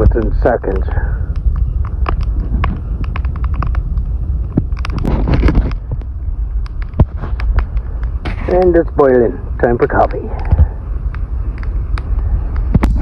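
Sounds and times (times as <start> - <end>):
campfire crackling and popping: 0.0 - 13.0
wind rumble on microphone: 0.0 - 13.0.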